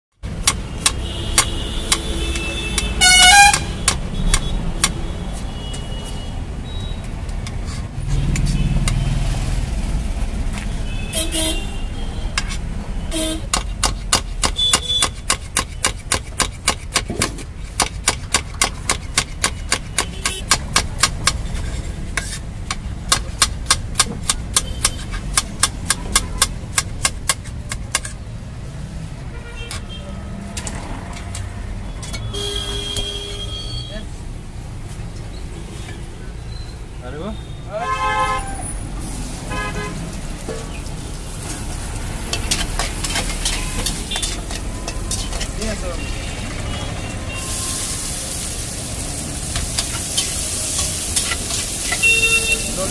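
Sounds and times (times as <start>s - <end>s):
street traffic: 0.1s - 52.9s
vehicle horn honking: 1.0s - 6.8s, 10.8s - 12.4s, 13.0s - 13.5s, 32.2s - 34.0s, 37.4s - 38.7s, 39.5s - 40.0s, 51.9s - 52.9s
knife chopping on stone slab: 13.5s - 21.6s.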